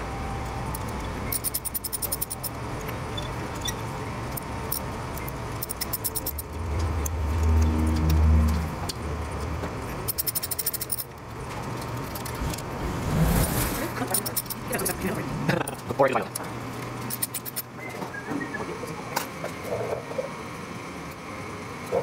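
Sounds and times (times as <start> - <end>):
rapid metallic clicking: 0.7 - 2.6, 4.3 - 11.2
low hum: 11.7 - 15.8.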